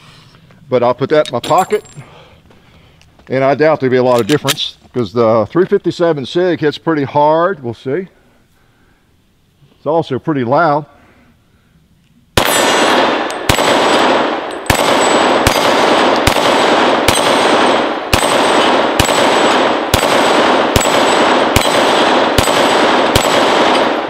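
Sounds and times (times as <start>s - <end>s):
pistol shots with echo: 12.4s - 24.0s.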